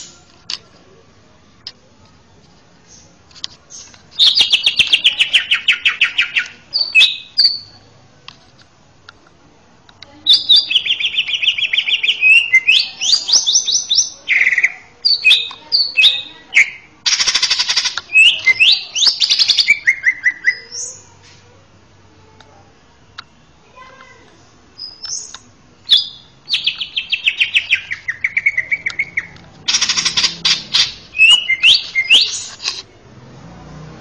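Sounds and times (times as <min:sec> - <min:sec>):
bird singing trills and whistles: 0:03.7 - 0:07.8, 0:10.3 - 0:21.1, 0:24.8 - 0:32.7.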